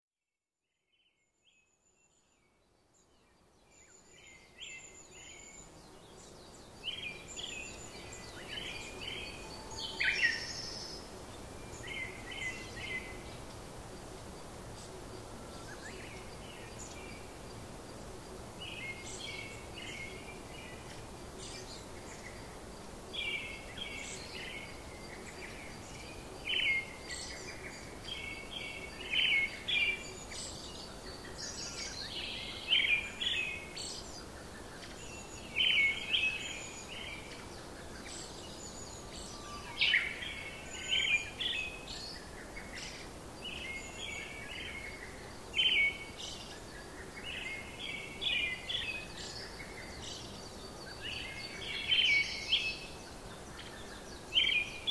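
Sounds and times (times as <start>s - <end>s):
background hiss: 0.9s - 54.9s
small birds chirping: 1.0s - 54.9s.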